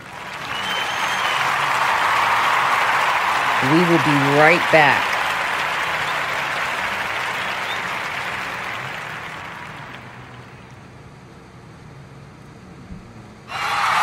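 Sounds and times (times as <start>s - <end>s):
applause: 0.0s - 10.7s, 13.5s - 14.0s.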